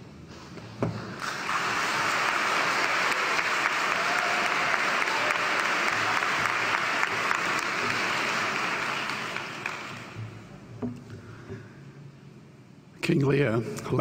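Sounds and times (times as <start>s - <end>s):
audience applauding: 1.2s - 10.4s.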